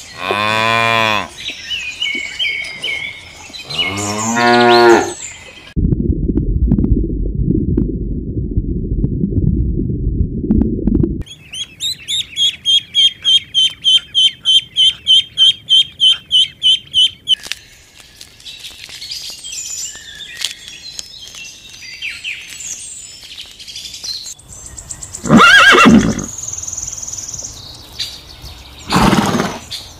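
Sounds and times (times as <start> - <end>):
horse whinnying: 25.2 - 26.3, 28.9 - 29.6.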